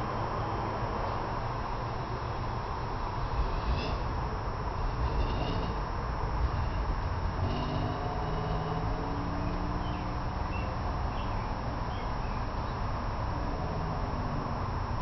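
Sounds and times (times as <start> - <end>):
outdoor background rumble: 0.0 - 15.0
faint bird chirps: 7.5 - 12.8.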